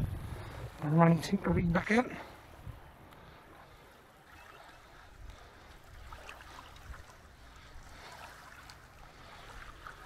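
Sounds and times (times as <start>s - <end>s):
small waves lapping on shore: 0.4s - 10.0s
light splashes: 3.1s - 10.0s.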